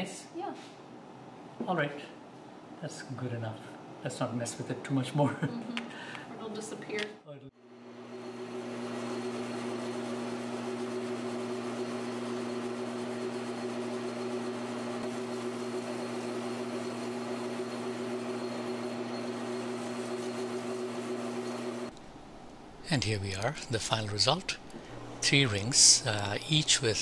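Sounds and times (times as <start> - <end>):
metal lathe humming: 7.6 - 21.9, 23.3 - 27.0.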